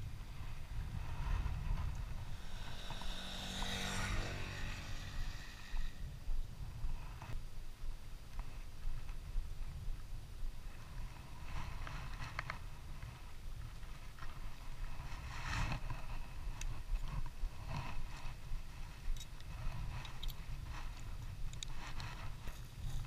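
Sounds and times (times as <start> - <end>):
wind rumble on microphone: 0.0 - 23.0
fishing reel rustles and clicks: 14.0 - 23.0.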